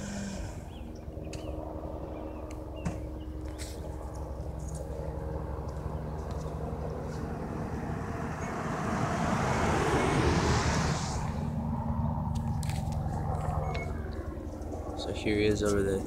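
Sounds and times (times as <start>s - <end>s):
helicopter rotor hum: 0.0s - 16.0s
rushing sound: 7.0s - 12.2s.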